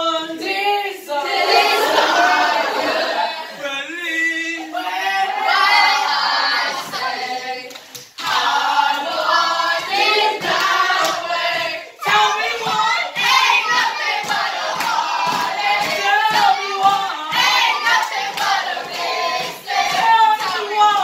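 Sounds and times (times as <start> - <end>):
group singing: 0.0 - 21.0
rhythmic hand clapping: 5.7 - 21.0.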